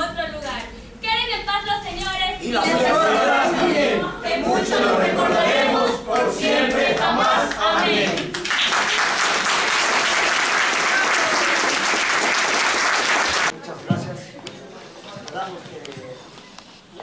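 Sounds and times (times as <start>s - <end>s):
group of voices singing: 2.4s - 8.4s
audience applauding: 7.4s - 13.6s.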